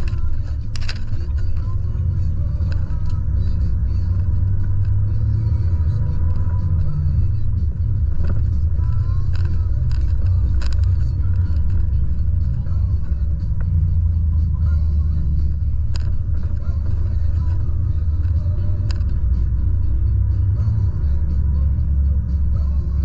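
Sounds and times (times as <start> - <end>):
truck diesel engine rumble: 0.0 - 23.0.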